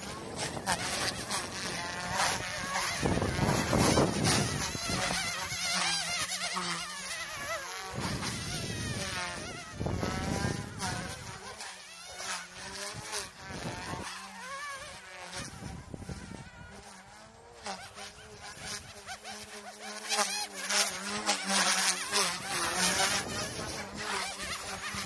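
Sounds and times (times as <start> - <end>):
rc helicopter buzzing whine: 0.0 - 25.0.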